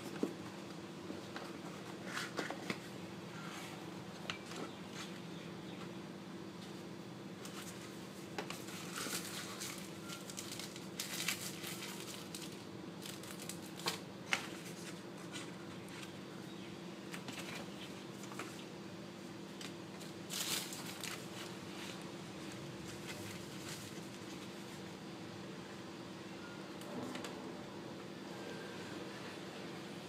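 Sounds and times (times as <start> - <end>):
steady low hum: 0.0 - 30.0
cardboard and paper rustling: 7.4 - 16.2, 17.1 - 18.6, 19.6 - 24.8.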